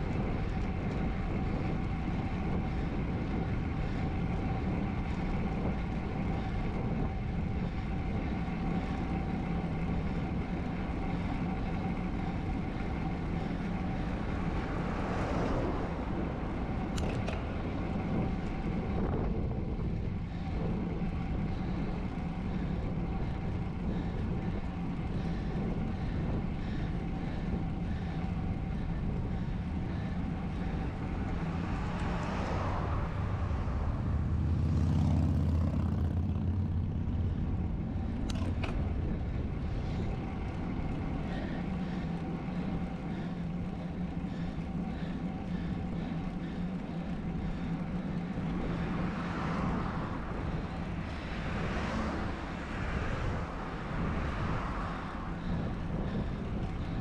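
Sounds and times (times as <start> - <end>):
road noise from bike: 0.0 - 57.0
wind noise on microphone: 48.4 - 57.0.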